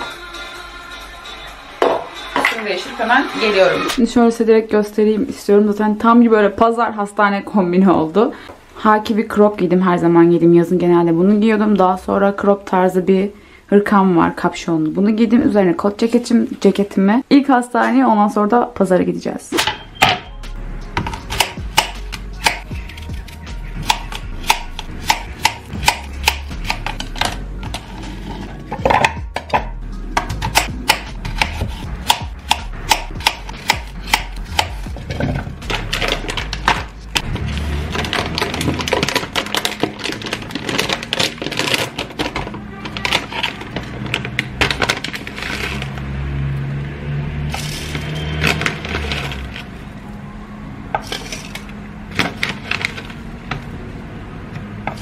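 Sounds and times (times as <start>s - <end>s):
background music: 0.0s - 6.4s, 19.6s - 55.0s
knife chopping on cutting board: 21.0s - 22.6s, 23.8s - 27.3s, 28.8s - 35.1s.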